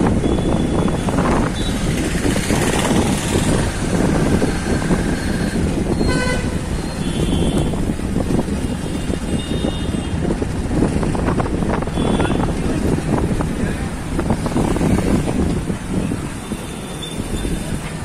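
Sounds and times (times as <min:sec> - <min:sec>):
vehicle engine and road rumble: 0:00.0 - 0:18.0
vehicle horn tooting: 0:06.0 - 0:07.8, 0:09.0 - 0:10.2, 0:11.9 - 0:12.5.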